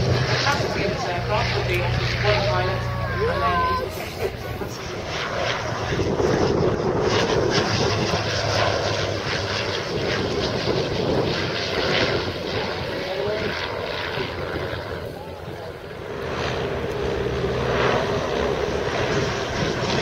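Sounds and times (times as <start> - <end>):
propeller plane engine drone: 0.0 - 20.0.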